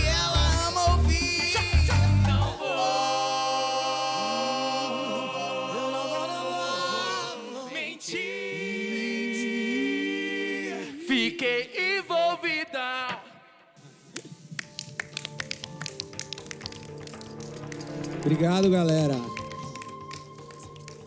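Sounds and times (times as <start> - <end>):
singers holding chords in harmony: 2.4 - 11.1.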